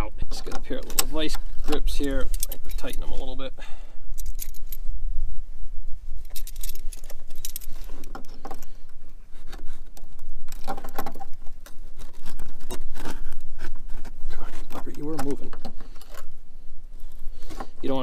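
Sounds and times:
steady low hum: 0.0 - 18.0
metal tool clinking on clip: 2.0 - 3.2, 4.1 - 4.8, 6.2 - 8.7.

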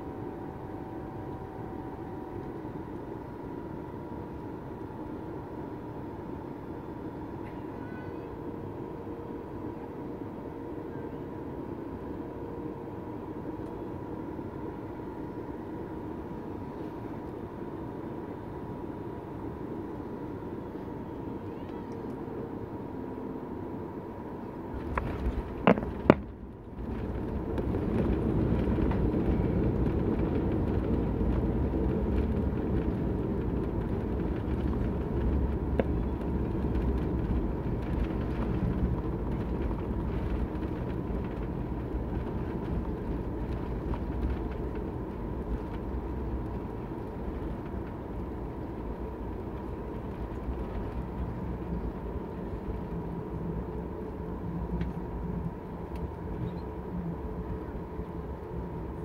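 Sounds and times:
faint steady whine: 0.0 - 59.0
jet engine and runway rumble: 0.0 - 59.0
wheels touching down thump: 24.9 - 26.4.

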